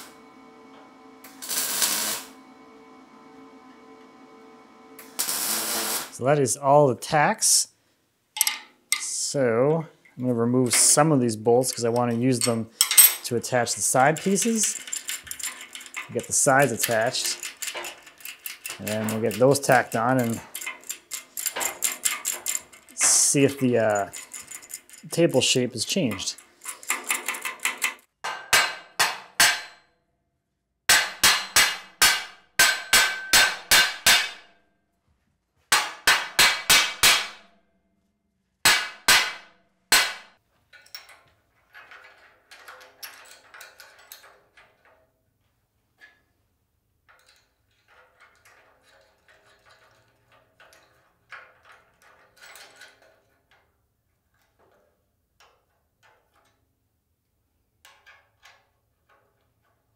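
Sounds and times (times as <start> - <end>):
wrench clinking on bolts: 8.4 - 9.2, 10.0 - 28.6, 40.7 - 45.0, 47.0 - 53.6.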